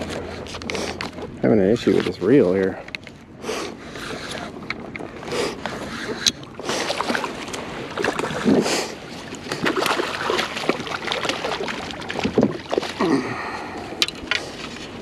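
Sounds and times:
fish splashing at surface: 9.5 - 13.0.

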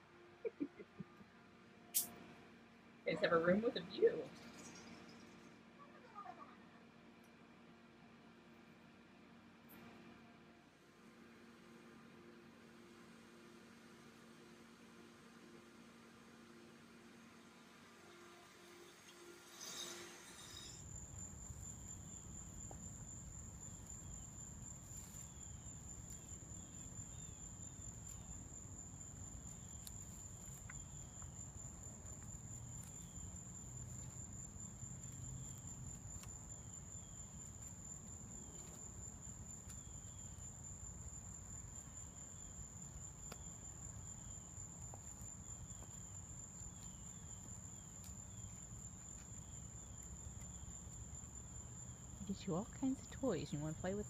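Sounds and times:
insect chirps: 1.9 - 2.2, 18.0 - 54.0
insects high steady tone: 11.2 - 54.0.

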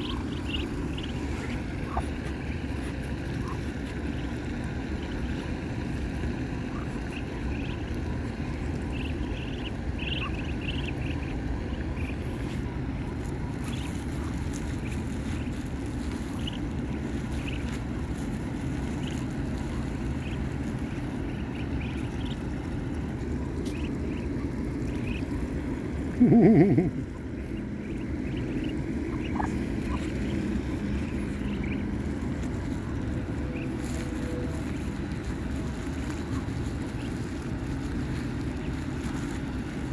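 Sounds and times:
ducklings peeping: 0.0 - 39.9
steady low rumble: 0.0 - 39.9.

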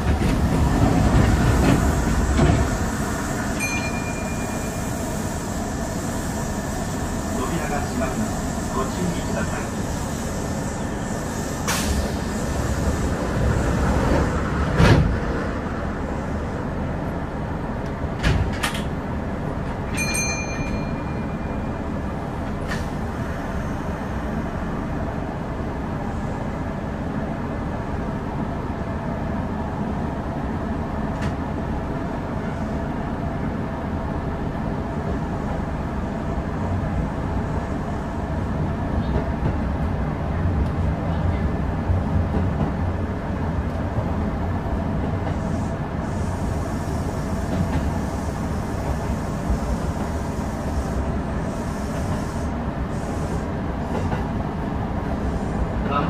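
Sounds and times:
train wheels rumbling: 0.0 - 27.1, 29.0 - 56.0
high ringing tone: 3.6 - 5.2, 19.9 - 22.0.

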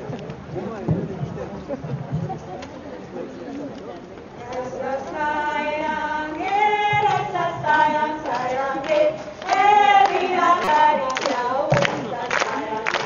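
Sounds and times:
group singing in unison: 4.4 - 13.0
hand claps: 8.2 - 13.0.

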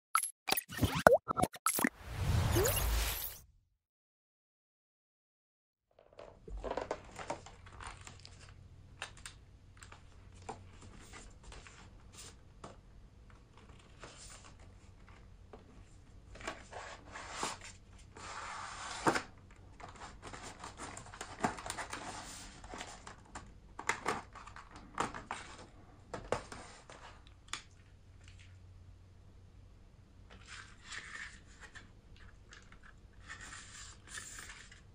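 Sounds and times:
cardboard and plastic rustling: 6.0 - 8.6.

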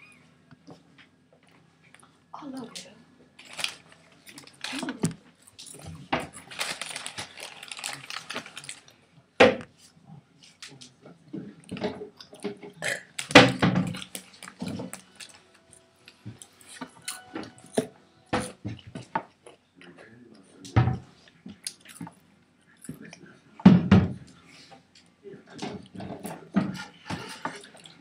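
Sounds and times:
plastic bag rustling: 3.4 - 5.2, 5.9 - 8.9
loud throaty burp: 12.8 - 13.2.

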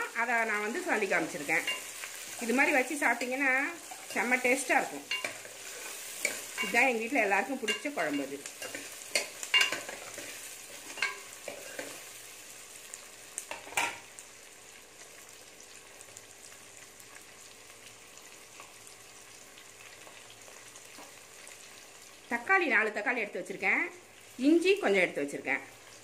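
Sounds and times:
food sizzling in hot oil: 0.0 - 26.0.

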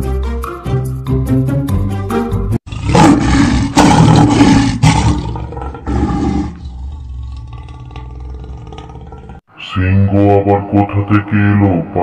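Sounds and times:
lion roaring: 2.7 - 9.4.

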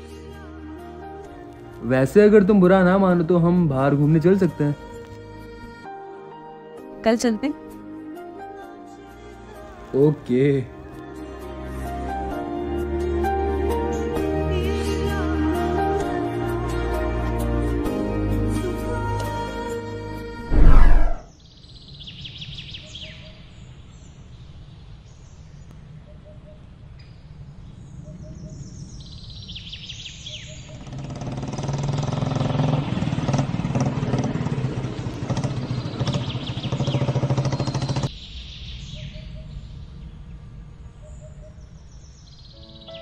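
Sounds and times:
motor engine hum: 30.8 - 38.1
birds chirping: 34.4 - 43.0.

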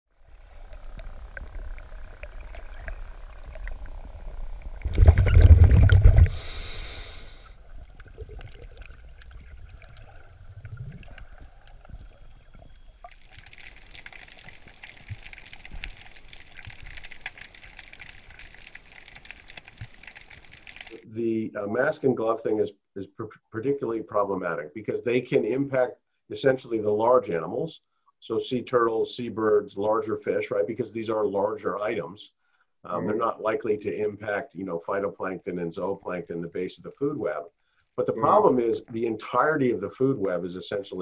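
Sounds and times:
muffled underwater rumble: 0.2 - 13.1
rush of bubbles: 0.2 - 21.0
crackling ticks: 0.5 - 4.4, 13.0 - 21.0
steady hiss: 6.1 - 7.8.

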